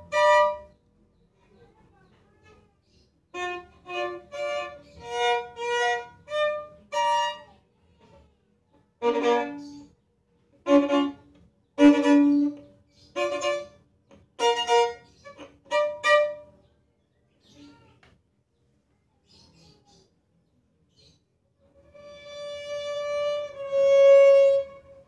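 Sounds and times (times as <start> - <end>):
solo violin melody: 0.0 - 0.7, 3.4 - 7.5, 9.0 - 9.8, 10.6 - 13.8, 14.4 - 16.5, 21.8 - 25.0.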